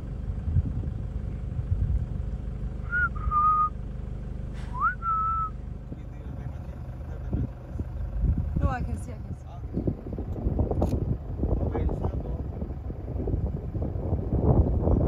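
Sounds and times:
vehicle engine rumbling: 0.0s - 15.0s
short rising whistles: 2.8s - 3.8s, 4.6s - 5.6s.

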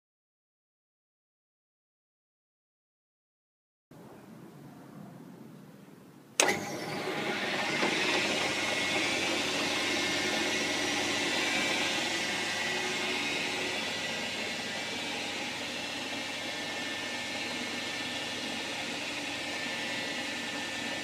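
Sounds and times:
electric motor whining: 6.4s - 21.0s.

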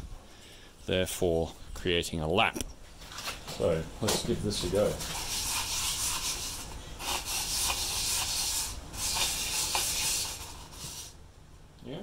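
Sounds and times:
sandpaper rubbing on wood: 4.9s - 11.2s.

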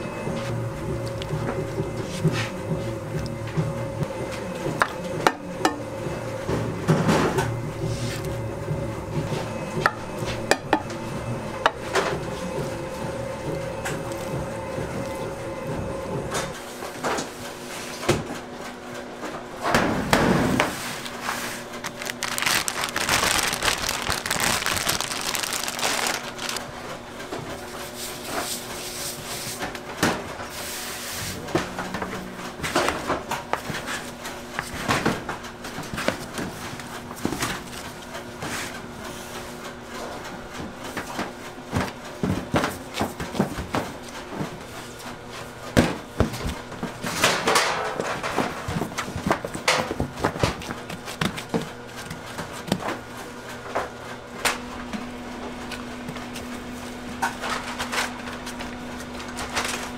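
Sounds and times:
machine hum: 0.0s - 17.6s, 19.5s - 27.8s.

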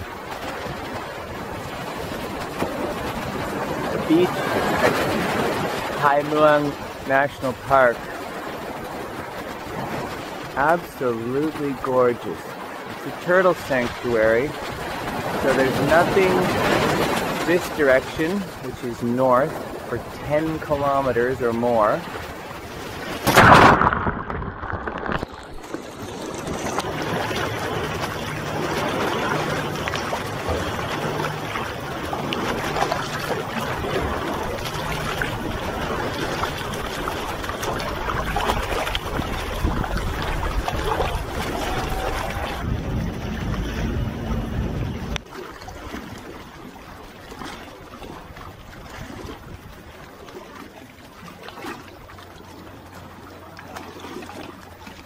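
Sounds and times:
water sloshing and splashing: 0.0s - 55.0s
low hum: 22.0s - 45.3s.

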